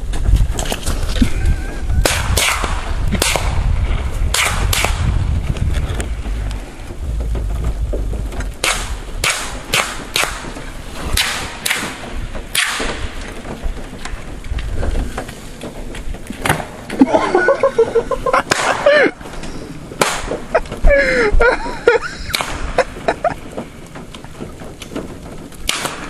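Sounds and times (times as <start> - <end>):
wind rumbling on microphone: 0.0 - 26.0
gunshots: 2.0 - 3.6, 4.3 - 5.2, 8.6 - 13.3, 18.4 - 18.9, 20.0 - 20.5, 22.3 - 22.8, 25.7 - 26.0.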